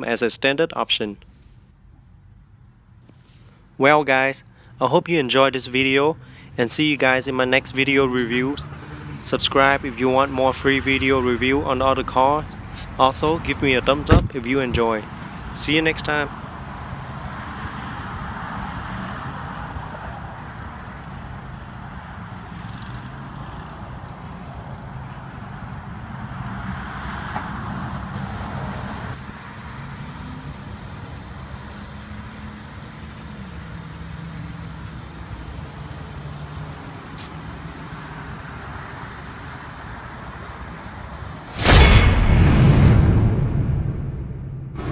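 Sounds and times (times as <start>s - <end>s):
traffic noise: 0.0s - 42.4s
sudden loud burst: 41.5s - 44.9s.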